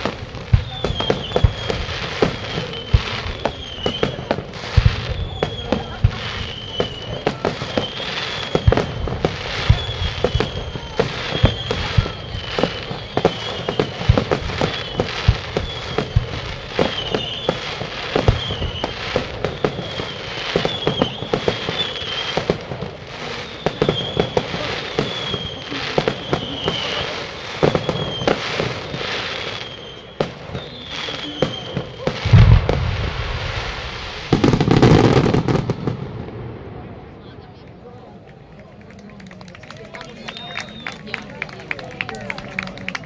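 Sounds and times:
deep firework boom: 0:00.0 - 0:22.9, 0:30.2 - 0:37.2
high wavering firework whistle: 0:00.0 - 0:35.8
fireworks bangs and crackles: 0:00.0 - 0:43.0.

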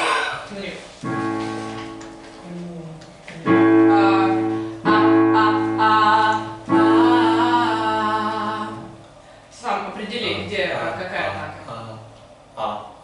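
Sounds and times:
piano chords: 0:00.0 - 0:09.1.

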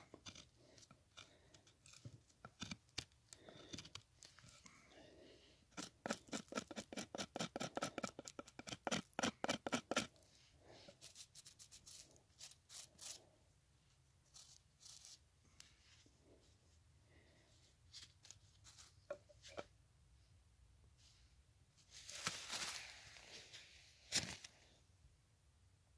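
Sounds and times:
knife carving strokes on wood: 0:00.0 - 0:04.6, 0:05.7 - 0:10.2, 0:10.9 - 0:13.2
rustling: 0:21.0 - 0:24.7.

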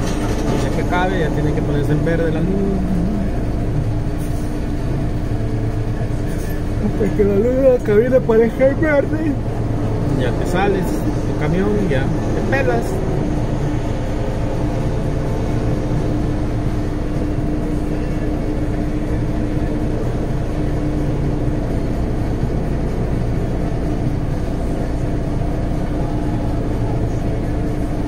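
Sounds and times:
truck engine idling: 0:00.0 - 0:28.0.

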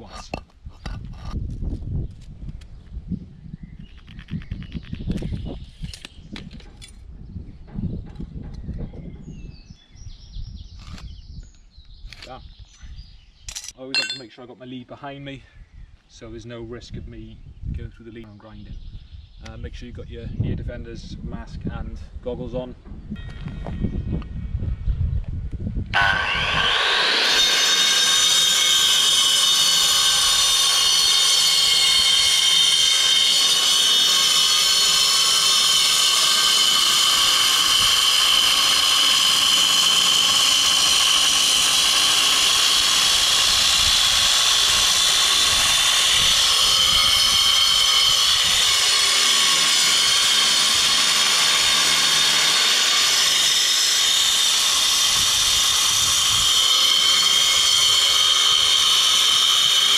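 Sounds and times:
angle grinder cutting concrete: 0:25.9 - 0:59.9.

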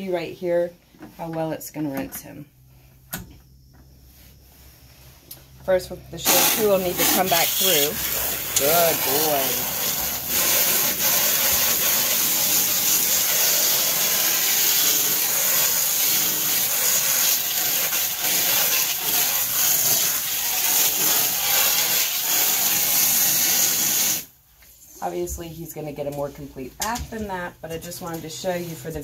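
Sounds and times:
water spraying onto dog's coat: 0:06.2 - 0:24.3.

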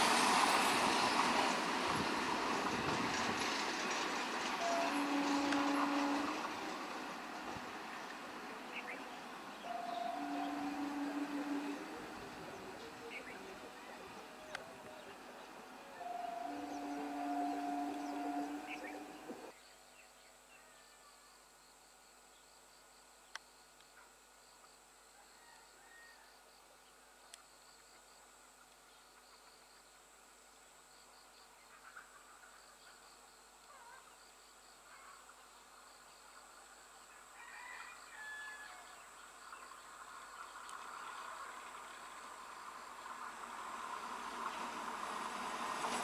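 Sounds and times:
rush of approaching train: 0:00.0 - 0:19.6, 0:31.7 - 0:46.0
train horn two-tone blast: 0:04.5 - 0:06.9, 0:09.6 - 0:13.0, 0:15.8 - 0:19.5
insects chirping: 0:38.9 - 0:46.0.

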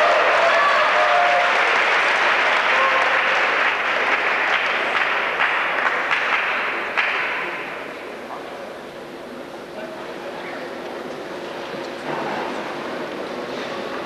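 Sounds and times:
crowd applauding: 0:00.0 - 0:07.7.

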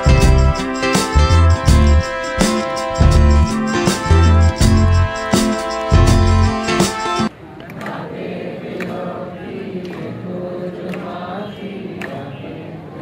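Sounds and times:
acoustic guitar: 0:00.0 - 0:07.3
background music with a beat: 0:00.0 - 0:07.3.

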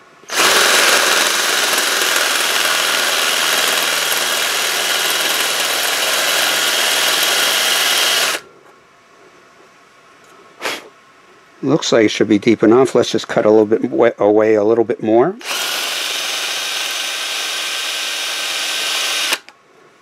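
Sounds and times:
cordless drill running slowly: 0:00.3 - 0:08.4, 0:15.4 - 0:19.5
drill bit cutting into bolt: 0:00.3 - 0:08.4, 0:15.4 - 0:19.5.

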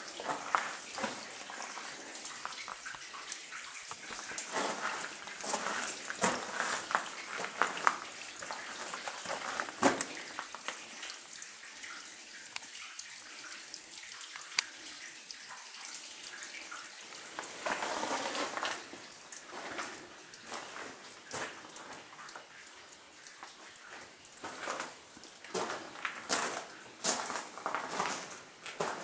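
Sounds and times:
water dripping and trickling: 0:00.0 - 0:29.0
footsteps: 0:00.2 - 0:02.9, 0:04.0 - 0:10.8, 0:23.9 - 0:29.0.

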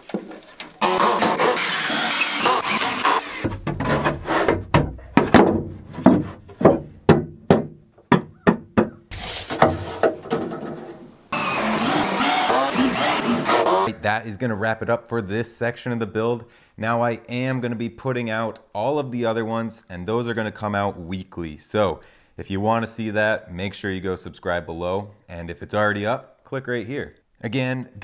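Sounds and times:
cordless drill driving screws: 0:00.8 - 0:03.5, 0:11.3 - 0:13.9
sharp wooden knocks: 0:03.4 - 0:10.8.

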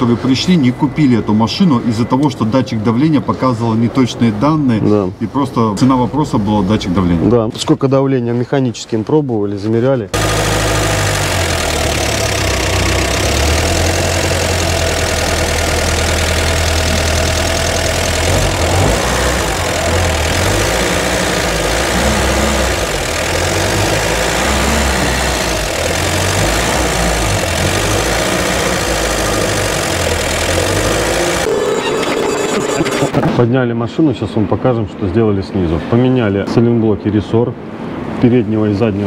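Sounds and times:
van engine running at low revs: 0:10.2 - 0:31.5.

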